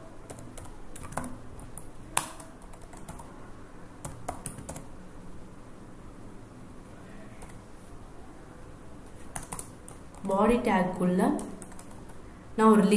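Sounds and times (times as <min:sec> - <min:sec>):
computer keyboard typing: 0:00.2 - 0:03.3, 0:04.0 - 0:04.9, 0:07.4 - 0:07.6, 0:09.2 - 0:10.4, 0:11.3 - 0:12.2.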